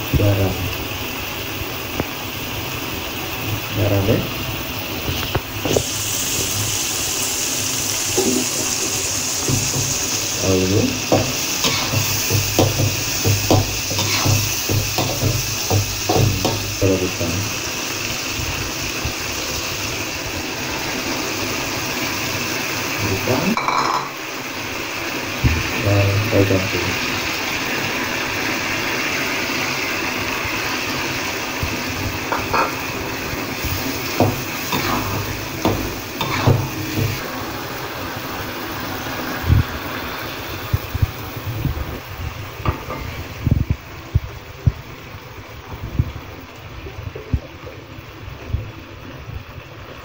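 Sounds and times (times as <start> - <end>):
food sizzling in a wok: 0.0 - 50.0
frying hiss: 0.0 - 50.0
metal spatula scraping wok: 11.2 - 12.8, 13.9 - 15.2, 34.1 - 37.2
metal spatula scraping a wok: 11.6 - 12.1, 13.9 - 15.2.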